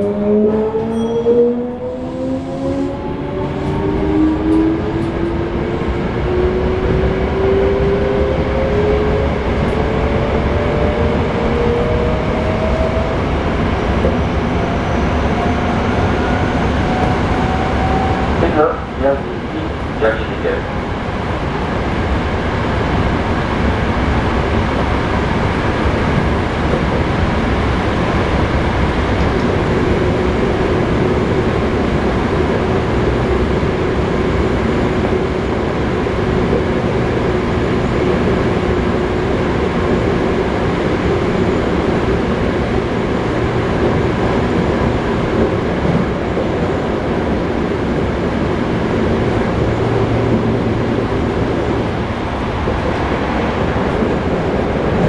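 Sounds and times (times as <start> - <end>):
steady train hum: 0.0 - 55.0
train wheels rumbling on rails: 0.0 - 55.0.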